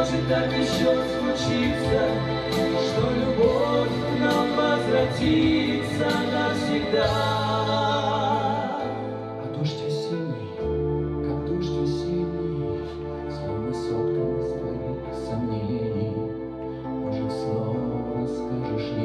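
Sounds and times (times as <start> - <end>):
man and woman singing duet: 0.0 - 10.2
instrumental accompaniment: 0.0 - 19.0.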